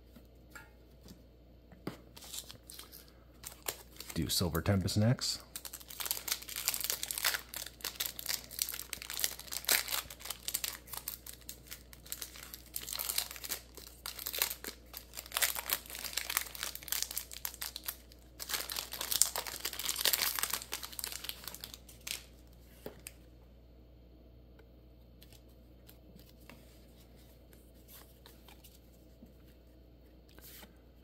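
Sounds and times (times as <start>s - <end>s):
foil wrapper crinkling: 2.2s - 22.3s.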